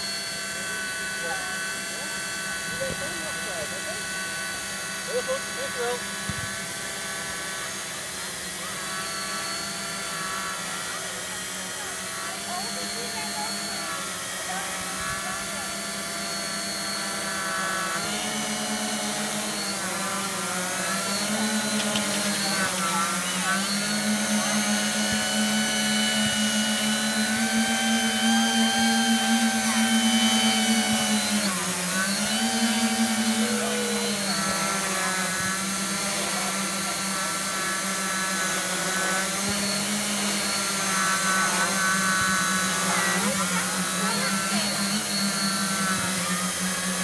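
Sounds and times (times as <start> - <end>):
drone motors buzzing hum: 0.0 - 47.0.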